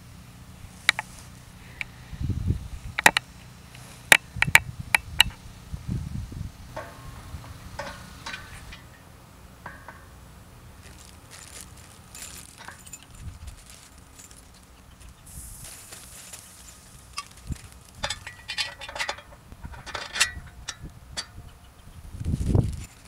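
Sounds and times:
wind rumble on microphone: 1.4s - 8.8s, 12.8s - 13.9s, 17.2s - 23.0s
metal scraping and rustling: 2.9s - 21.5s, 22.2s - 23.0s
metal parts clinking: 6.8s - 9.0s, 10.8s - 21.4s.

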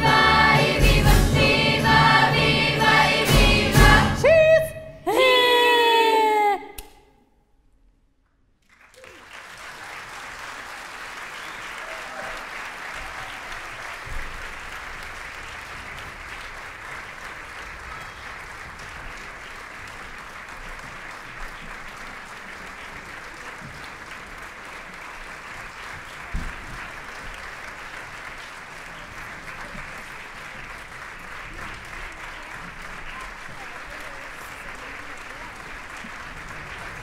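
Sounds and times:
audience applauding: 8.6s - 37.0s.

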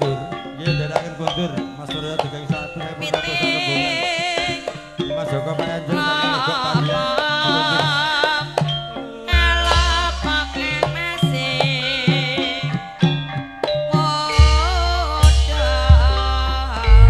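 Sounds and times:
gamelan music: 0.0s - 17.0s
wavering sung or bowed line: 0.0s - 17.0s
hand drum strokes: 0.9s - 17.0s
deep low stroke: 15.2s - 17.0s.

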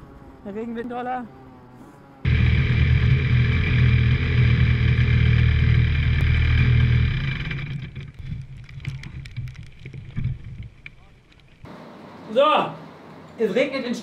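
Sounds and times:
kart engine idling: 2.3s - 8.2s.

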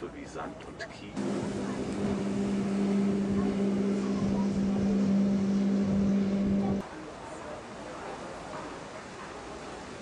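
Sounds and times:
boat engine humming: 1.2s - 6.8s.

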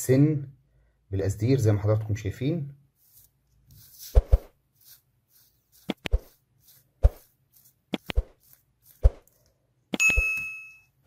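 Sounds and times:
hot soldering tip popping and sizzling: 5.6s - 10.5s.

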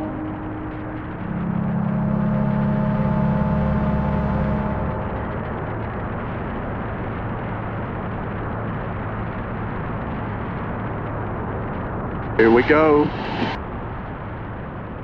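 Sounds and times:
rush of air: 12.4s - 13.8s.

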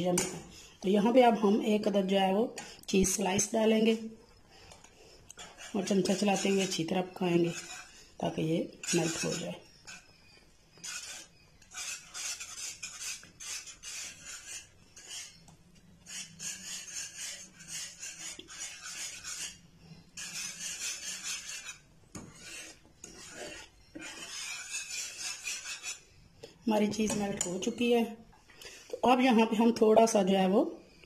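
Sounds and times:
metal whisk scraping a frying pan: 5.3s - 26.1s.

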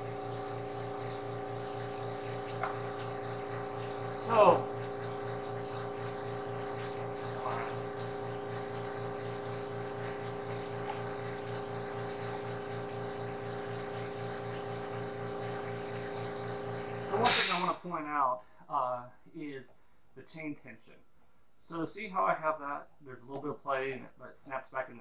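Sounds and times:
air compressor running: 0.0s - 18.0s.

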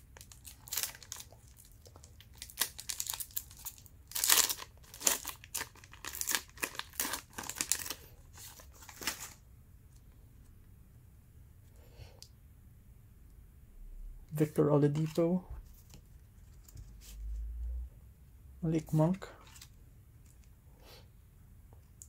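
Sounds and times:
wrapper tearing and crinkling: 0.2s - 9.4s.

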